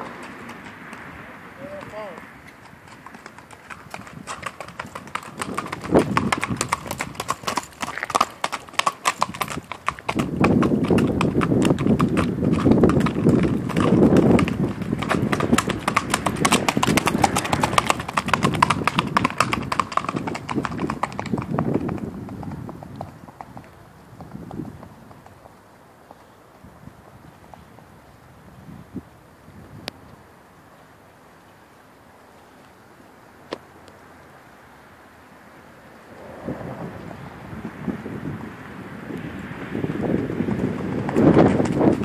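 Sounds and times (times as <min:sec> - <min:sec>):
horse hoofbeats on pavement: 0:00.0 - 0:28.1, 0:39.3 - 0:42.0.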